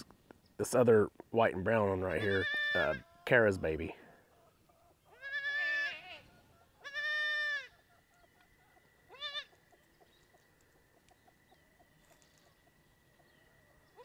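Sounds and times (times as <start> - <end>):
goat kid bleating: 2.2 - 3.2, 5.1 - 7.7, 9.1 - 9.6.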